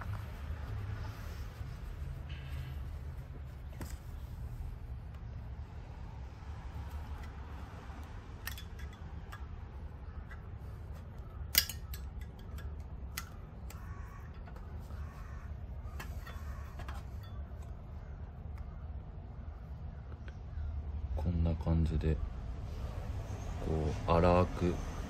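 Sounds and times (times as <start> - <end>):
tool clicking and scraping on metal: 8.3 - 15.0, 15.9 - 17.6.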